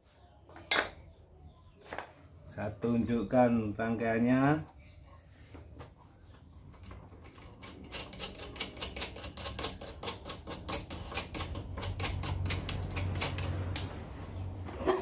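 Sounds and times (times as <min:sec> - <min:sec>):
rapid mechanical clicking: 0:07.3 - 0:13.9.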